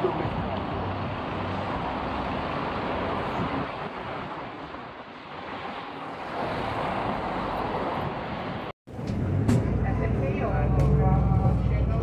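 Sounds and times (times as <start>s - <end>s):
wind on microphone: 0.0s - 8.7s
street traffic: 0.0s - 12.0s.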